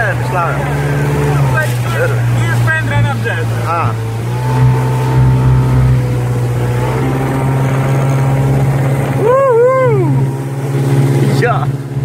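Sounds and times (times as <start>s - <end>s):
motorboat engine droning: 0.0s - 12.0s.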